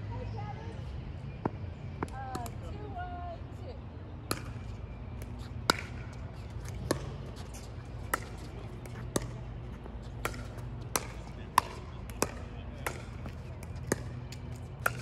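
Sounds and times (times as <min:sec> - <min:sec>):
low background hum: 0:00.0 - 0:15.0
ball bouncing on hard court: 0:05.7 - 0:09.4, 0:10.1 - 0:15.0
paddles hitting plastic ball: 0:10.1 - 0:15.0.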